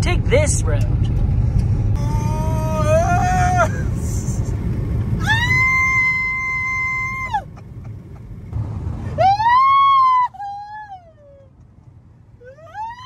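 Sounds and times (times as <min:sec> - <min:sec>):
car cabin rumble: 0:00.0 - 0:13.0
man wailing: 0:02.0 - 0:04.4.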